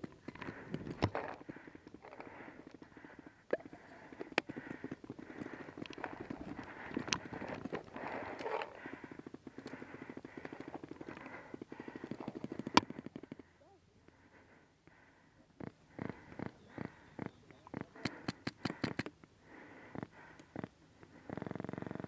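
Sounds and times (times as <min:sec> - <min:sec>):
gear rustling and knocking: 0:00.0 - 0:02.8, 0:04.1 - 0:13.0.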